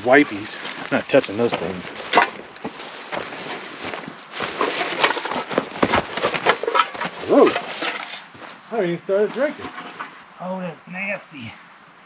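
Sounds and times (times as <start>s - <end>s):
footsteps through dry brush: 0.0s - 10.0s
plastic bag rustling: 0.4s - 8.6s.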